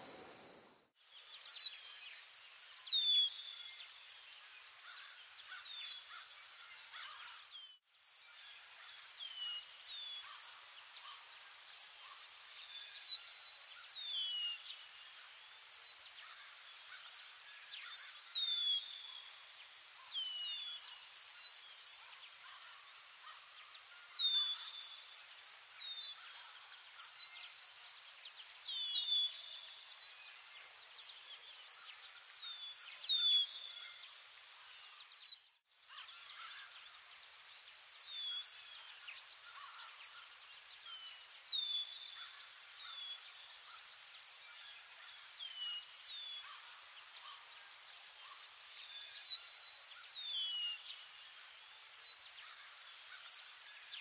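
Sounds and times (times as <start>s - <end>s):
bird chirping: 0.0s - 11.2s.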